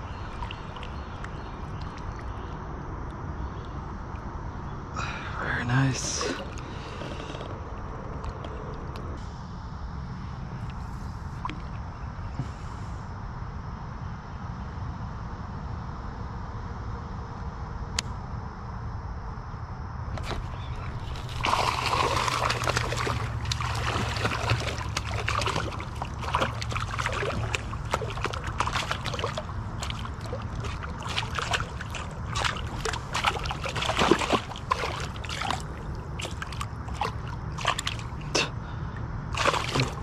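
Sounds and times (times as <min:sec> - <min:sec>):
fish splashing in water: 0:00.0 - 0:02.5, 0:20.2 - 0:38.5, 0:39.3 - 0:40.0.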